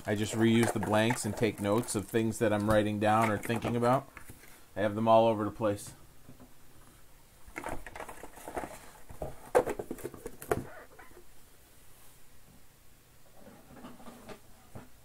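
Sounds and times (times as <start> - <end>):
cardboard box and foil pack handling: 7.6 - 10.6.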